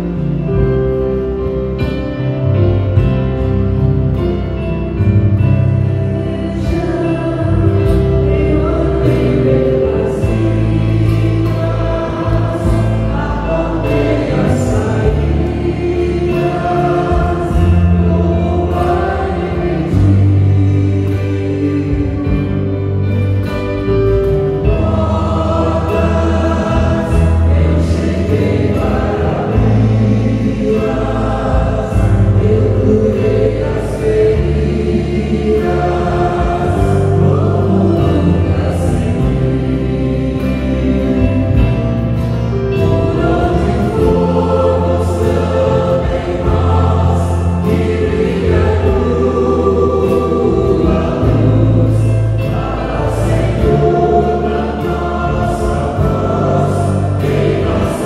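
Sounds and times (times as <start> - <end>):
acoustic guitar: 0.0 - 58.0
group singing a hymn: 0.0 - 58.0
piano: 0.0 - 58.0.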